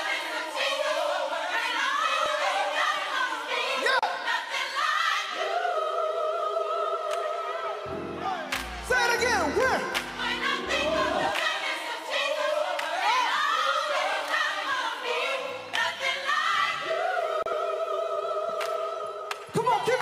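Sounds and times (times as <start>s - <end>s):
gospel choir singing: 0.0s - 20.0s
bass notes: 7.9s - 11.3s.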